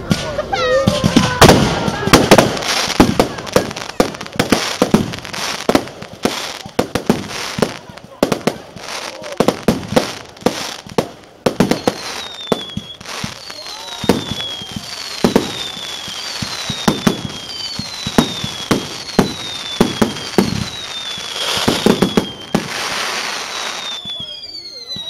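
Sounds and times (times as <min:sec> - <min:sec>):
fireworks crackle: 0:00.0 - 0:25.0
fireworks falling whistles: 0:00.0 - 0:25.0
fireworks shells bursting: 0:09.4 - 0:25.0.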